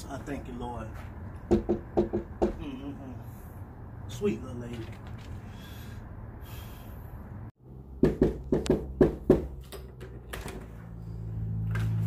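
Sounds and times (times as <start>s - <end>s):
quick knocks on a door: 1.5s - 2.6s.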